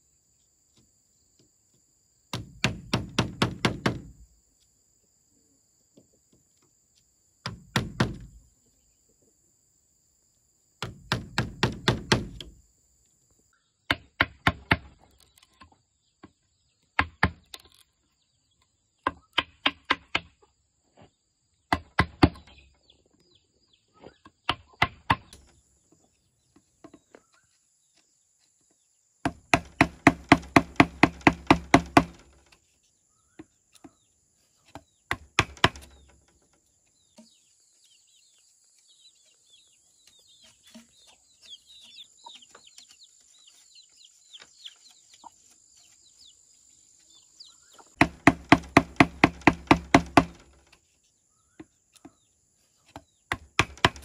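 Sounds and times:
hand tool striking wood: 0:02.3 - 0:04.2, 0:07.4 - 0:08.4, 0:10.8 - 0:12.6, 0:29.2 - 0:32.5, 0:34.7 - 0:36.3, 0:47.9 - 0:50.7, 0:52.9 - 0:54.0.

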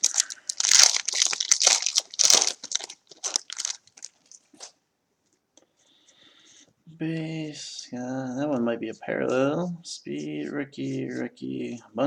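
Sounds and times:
wrapper tearing and crinkling: 0:00.0 - 0:04.7.

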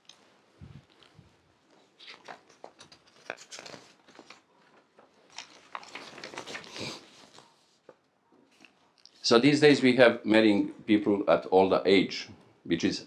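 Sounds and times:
clicks and crinkling rustles: 0:00.0 - 0:09.2.

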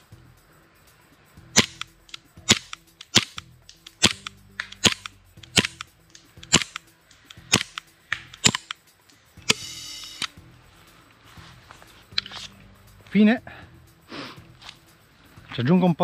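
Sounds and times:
airsoft pistol firing: 0:01.6 - 0:01.9, 0:02.5 - 0:03.4, 0:04.0 - 0:05.9, 0:06.5 - 0:06.8, 0:07.5 - 0:08.8.

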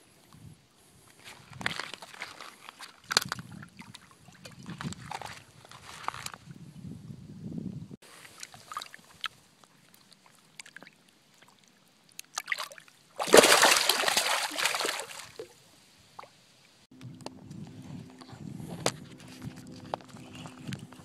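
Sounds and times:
water splashing around fish: 0:08.1 - 0:15.6.

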